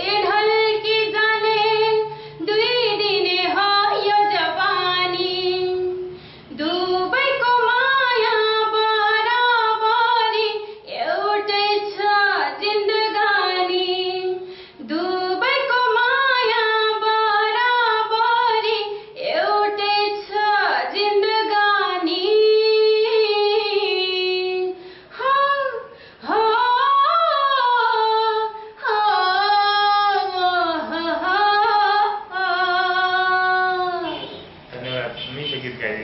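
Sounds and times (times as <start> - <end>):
woman singing unaccompanied: 0.0 - 34.4.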